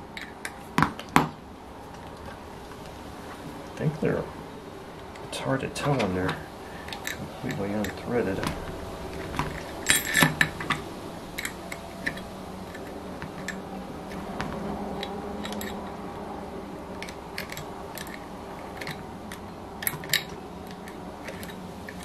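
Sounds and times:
wrench clicking and tapping on metal: 15.0 - 15.8, 17.0 - 22.0.

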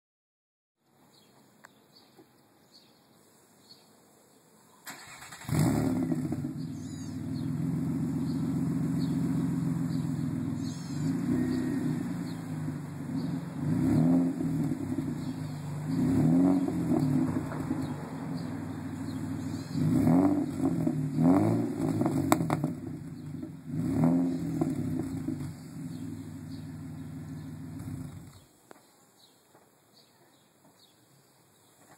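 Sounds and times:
car engine starting: 4.8 - 28.5
engine revving: 4.9 - 28.4
car engine idling: 5.0 - 28.4.

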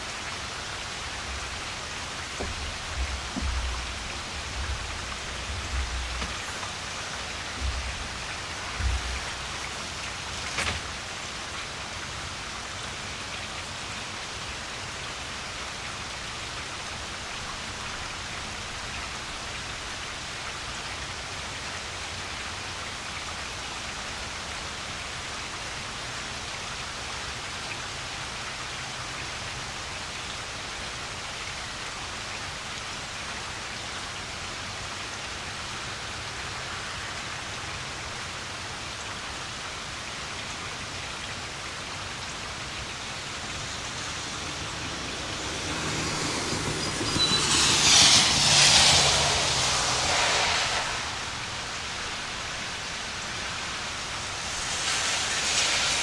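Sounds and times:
car tyres hissing on wet road: 0.0 - 56.0
steady rain falling: 0.0 - 56.0.

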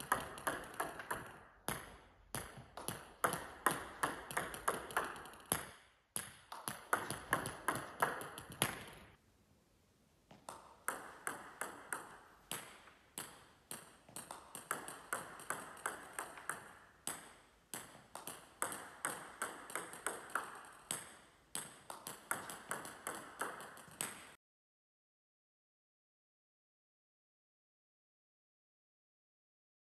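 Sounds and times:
balls bouncing on floor: 0.0 - 9.2, 10.3 - 24.4
table tennis balls clicking: 0.0 - 9.2, 10.3 - 24.4.

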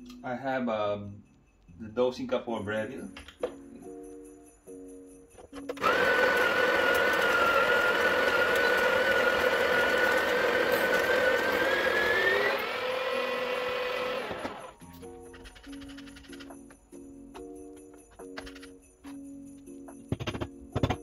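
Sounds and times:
coffee grinder whining: 5.7 - 14.8.

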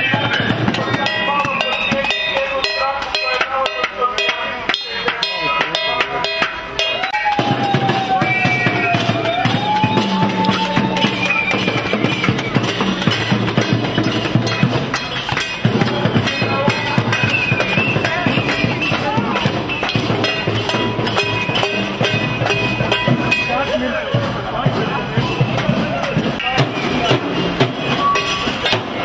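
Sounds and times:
drum-heavy din: 0.0 - 29.0.

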